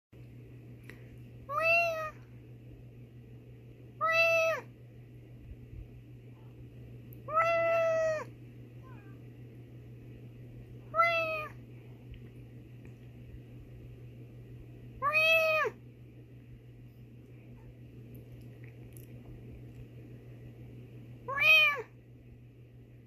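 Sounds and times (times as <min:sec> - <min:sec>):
cat meowing: 0:01.5 - 0:02.2, 0:04.0 - 0:04.7, 0:07.3 - 0:09.2, 0:10.9 - 0:11.6, 0:15.0 - 0:15.8, 0:21.3 - 0:21.9.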